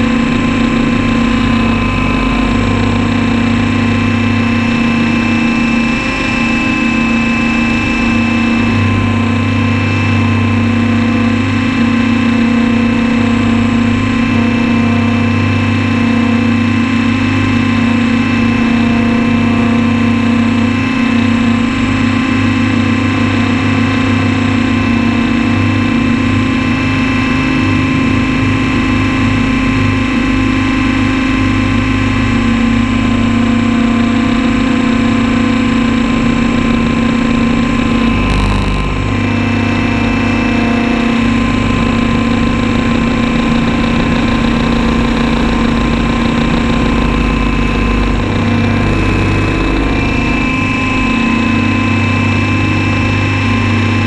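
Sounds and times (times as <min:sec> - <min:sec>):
model helicopter motor and rotor: 0:00.0 - 0:27.5, 0:28.7 - 0:54.0.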